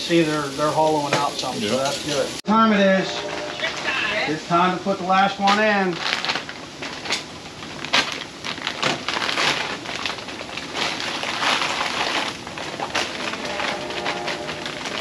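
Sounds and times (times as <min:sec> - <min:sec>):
plastic bag crinkling: 0:05.3 - 0:15.0.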